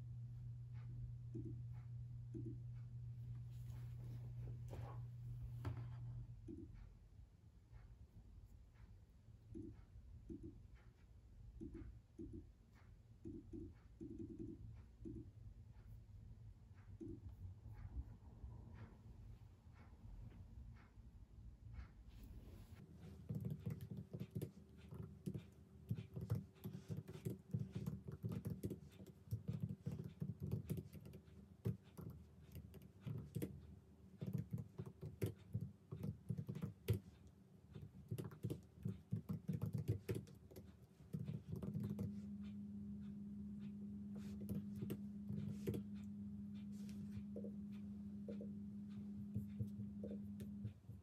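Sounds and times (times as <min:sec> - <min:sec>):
steady low hum: 0:00.0 - 0:51.0
laptop keyboard typing: 0:23.0 - 0:42.5, 0:43.6 - 0:47.6.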